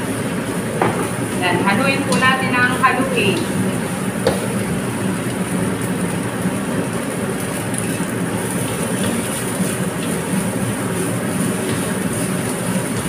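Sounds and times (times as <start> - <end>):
food sizzling in a wok: 0.0 - 13.0
spatula stirring and scraping: 7.7 - 13.0.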